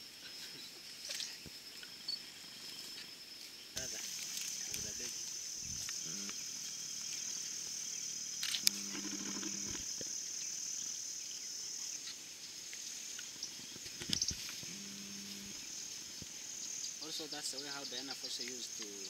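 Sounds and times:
insect chorus: 0:00.0 - 0:19.0
sharp clicks: 0:08.4 - 0:09.8.

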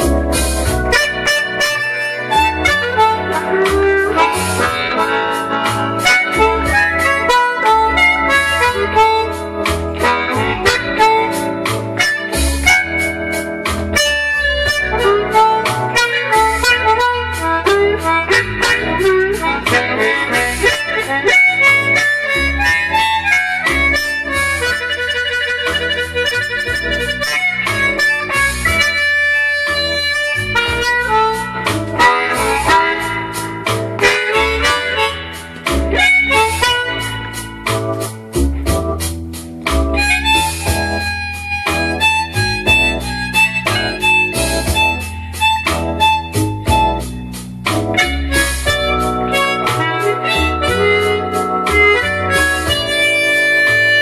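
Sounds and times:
backing track with steady beat: 0:00.0 - 0:54.0
blues harmonica: 0:00.0 - 0:54.0.

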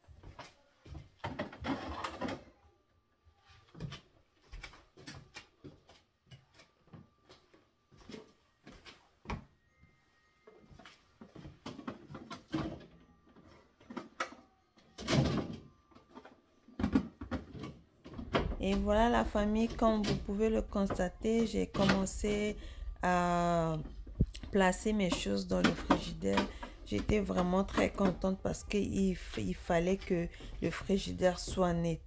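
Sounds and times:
plastic containers knocking and clattering: 0:01.1 - 0:02.6, 0:11.3 - 0:32.0.

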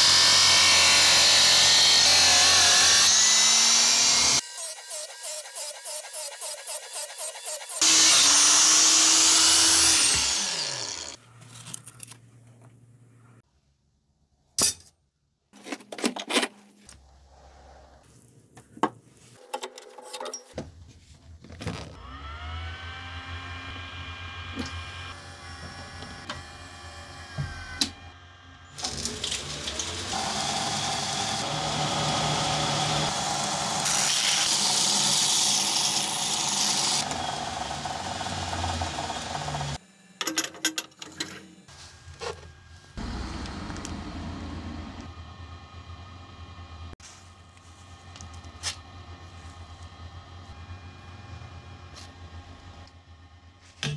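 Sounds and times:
belt grinder motor spinning up: 0:00.0 - 0:11.2, 0:22.0 - 0:27.9, 0:28.7 - 0:39.8, 0:43.0 - 0:45.5
blade grinding on belt: 0:00.0 - 0:11.2
grinding wheel on knife blade: 0:04.3 - 0:11.2
motor winding down whine: 0:07.6 - 0:11.2, 0:22.0 - 0:40.0, 0:43.0 - 0:47.0.

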